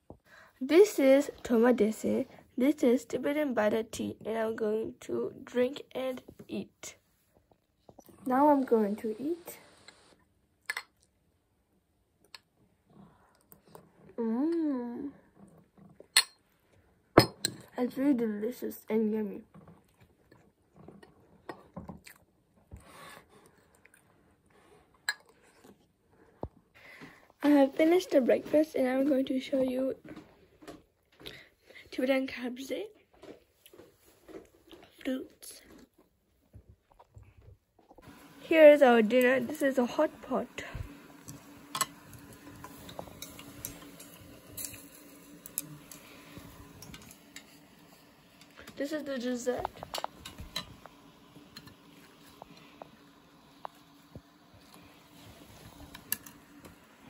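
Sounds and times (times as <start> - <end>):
faint steady hum: 0.1 - 15.4
soft chewing: 19.5 - 26.6, 33.4 - 38.0.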